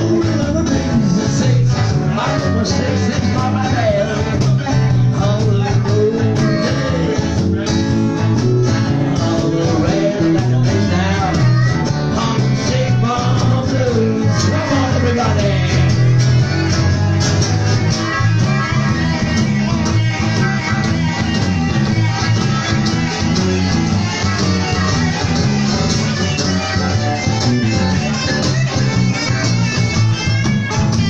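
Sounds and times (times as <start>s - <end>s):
man singing into a microphone: 0.0s - 16.6s
bass line: 0.0s - 31.0s
strummed acoustic guitar: 0.0s - 31.0s.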